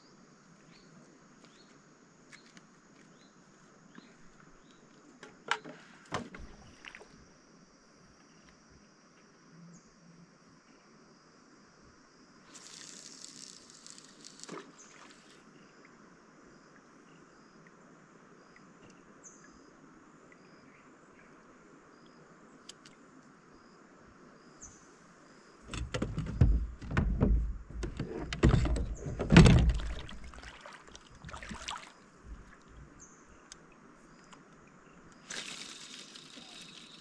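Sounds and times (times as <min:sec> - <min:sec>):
heavy knocks and rumbling: 0:25.7 - 0:30.2.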